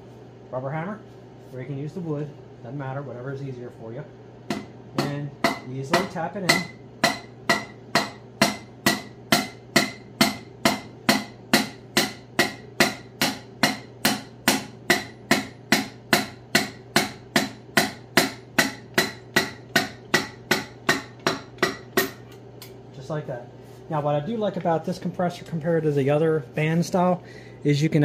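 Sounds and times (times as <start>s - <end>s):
hammer tapping metal piston: 4.5s - 22.8s.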